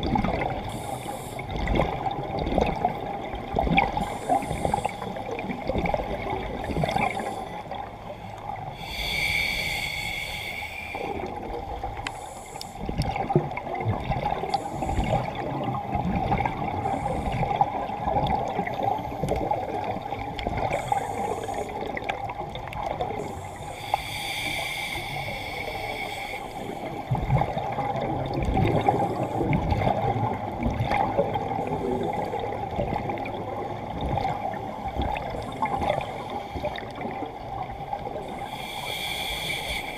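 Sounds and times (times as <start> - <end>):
bubbling of exhaled air: 0.0 - 7.9, 8.7 - 39.9
scuba regulator hissing inhales: 0.7 - 1.6, 4.0 - 5.3, 8.7 - 11.3, 12.0 - 12.9, 20.6 - 21.9, 23.2 - 27.1, 38.3 - 39.9.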